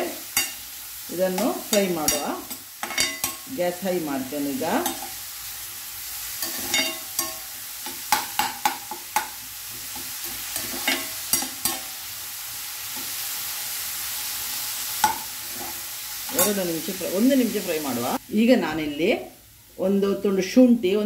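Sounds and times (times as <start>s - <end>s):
onions sizzling in oil: 0.0s - 21.0s
spoon scraping a frying pan: 0.2s - 0.7s, 1.3s - 3.5s, 4.8s - 5.2s, 6.3s - 12.1s, 14.9s - 16.6s.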